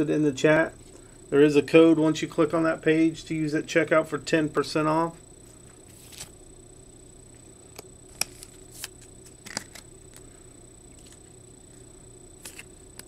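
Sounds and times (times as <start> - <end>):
faint electrical hum: 0.0 - 13.0
cards clicking and rustling: 6.0 - 6.3, 8.1 - 10.2, 12.4 - 13.0.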